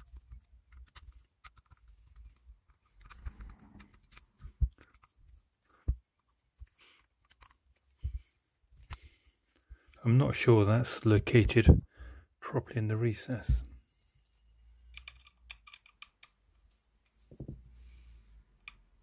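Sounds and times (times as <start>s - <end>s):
hands handling a lens: 0.2s - 9.6s.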